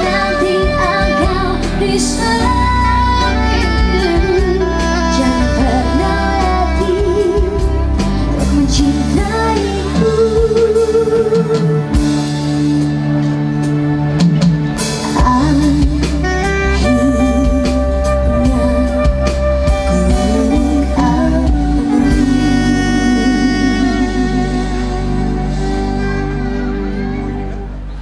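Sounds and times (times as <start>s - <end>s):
man and woman singing duet: 0.0s - 12.0s, 15.2s - 25.0s
drums: 0.0s - 28.0s
keyboard: 0.0s - 28.0s
soprano saxophone: 0.0s - 28.0s.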